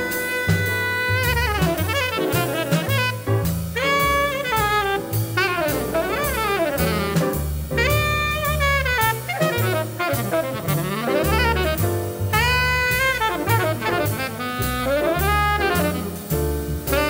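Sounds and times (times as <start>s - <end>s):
drums with cymbal strokes: 0.0s - 17.0s
piano: 0.0s - 17.0s
tenor saxophone solo: 0.0s - 17.0s
walking double bass: 0.0s - 17.0s.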